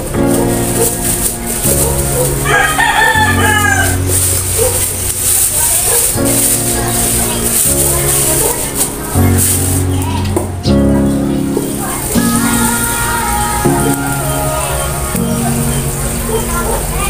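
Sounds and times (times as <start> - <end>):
background music: 0.0 - 17.0
rooster crowing: 2.2 - 4.8.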